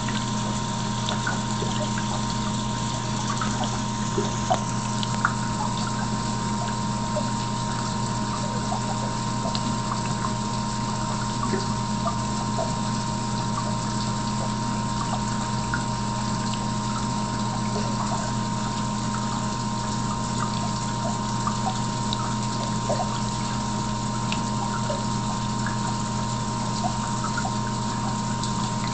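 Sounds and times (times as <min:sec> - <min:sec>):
aquarium pump humming: 0:00.0 - 0:28.9
water trickling: 0:00.0 - 0:28.9
faint ticks: 0:04.2 - 0:05.4.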